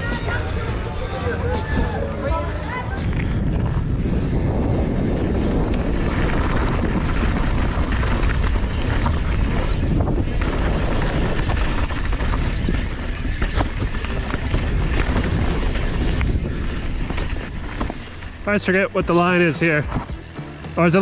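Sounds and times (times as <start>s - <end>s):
wind buffeting microphone: 0.0s - 18.1s
bike clicks and rattles: 1.2s - 18.8s, 19.8s - 21.0s
tyres rolling on dirt: 5.9s - 21.0s.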